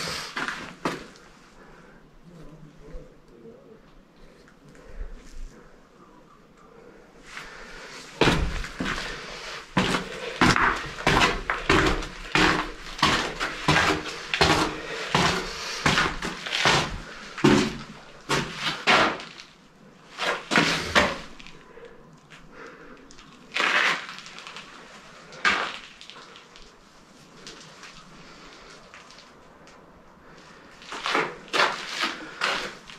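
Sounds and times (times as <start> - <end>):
footsteps crunching on rubble: 7.3 - 21.7, 23.1 - 29.4, 30.5 - 32.9.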